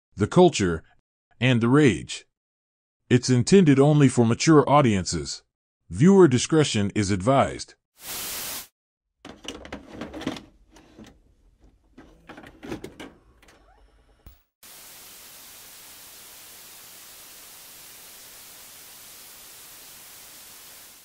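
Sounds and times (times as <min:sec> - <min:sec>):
cassette loading clicks and clunks: 0:09.3 - 0:13.8
tape static hiss: 0:14.2 - 0:21.0.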